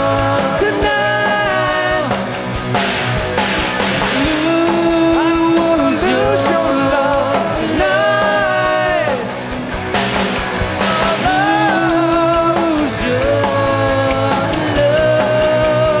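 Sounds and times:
lead vocal singing: 0.0s - 2.5s, 4.0s - 9.8s, 10.6s - 16.0s
drums and cymbals: 0.0s - 16.0s
electric guitars: 0.0s - 16.0s.

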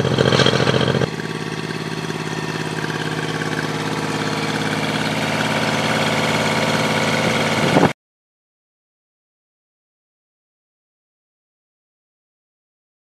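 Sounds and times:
outboard motor idling: 0.0s - 7.9s.

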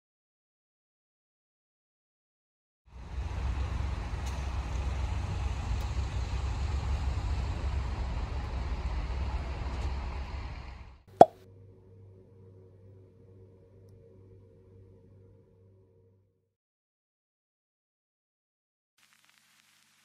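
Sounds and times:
vehicle rumble and road noise: 2.9s - 11.1s.

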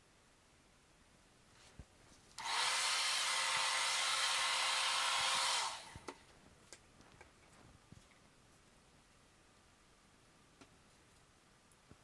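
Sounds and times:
blow dryer blowing: 2.4s - 6.2s.

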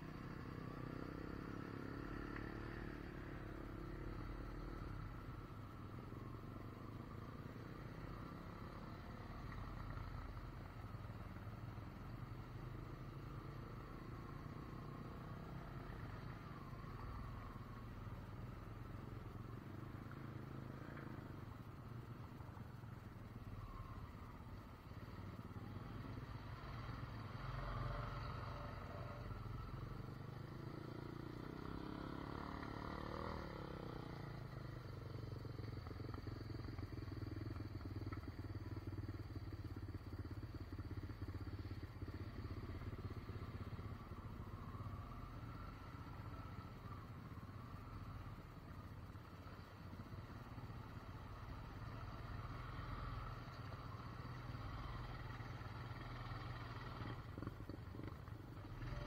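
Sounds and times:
atv engine running through mud: 30.4s - 48.2s, 49.1s - 59.0s.

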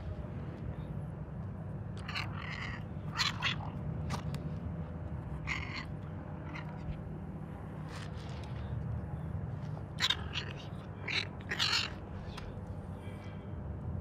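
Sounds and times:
cat meowing and chirping: 2.0s - 3.7s, 10.0s - 12.0s.

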